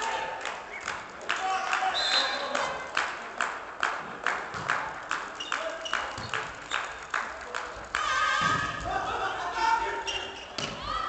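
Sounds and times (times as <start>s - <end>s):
spectators rhythmic clapping: 0.0s - 9.5s.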